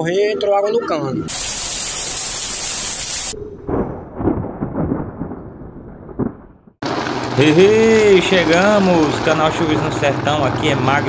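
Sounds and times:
heavy rain hiss: 1.3s - 3.4s, 6.8s - 11.0s
rolling thunder with sharp cracks: 3.4s - 9.6s.

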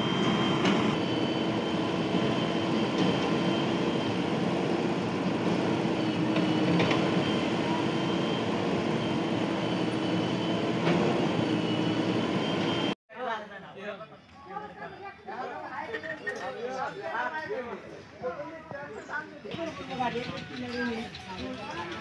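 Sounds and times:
diesel engines droning: 0.0s - 13.0s.

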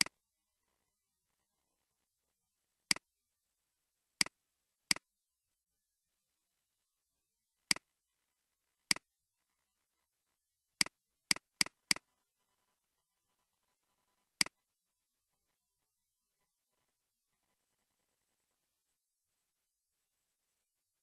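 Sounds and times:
computer mouse clicks: 10.8s - 12.1s.

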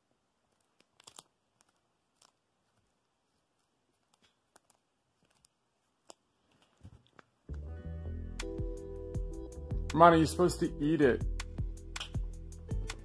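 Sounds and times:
cat crunching dry treat: 0.4s - 6.2s.

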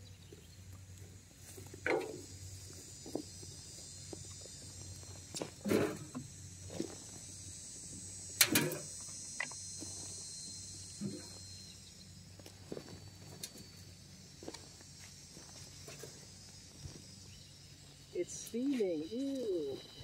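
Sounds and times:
insects droning: 0.0s - 20.0s
shovel scraping into compost: 5.6s - 6.2s.

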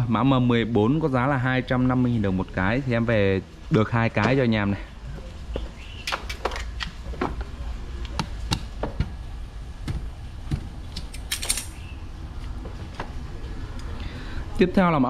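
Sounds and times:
parts rattling: 9.8s - 11.9s
small hardware parts clicking: 10.9s - 11.8s.

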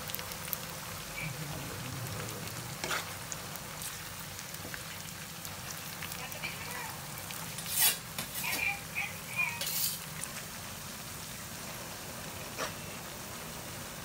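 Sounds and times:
garlic sizzling in hot oil: 0.0s - 14.0s
metal spoon stirring: 7.2s - 8.6s, 9.6s - 10.1s.

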